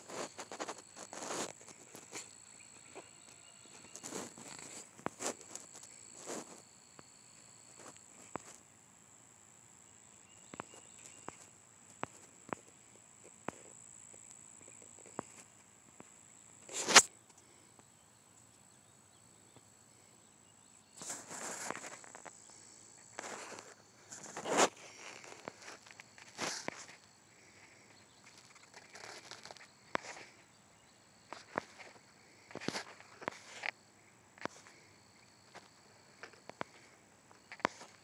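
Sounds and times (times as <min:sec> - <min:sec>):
rustling: 0:00.0 - 0:06.7, 0:21.0 - 0:30.4
faint steady high whine: 0:00.0 - 0:38.0.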